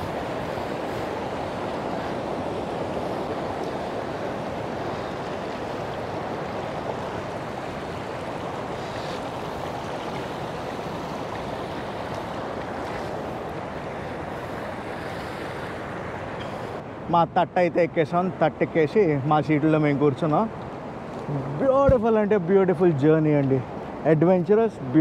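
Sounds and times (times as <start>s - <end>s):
river rushing over rocks: 0.0s - 16.9s.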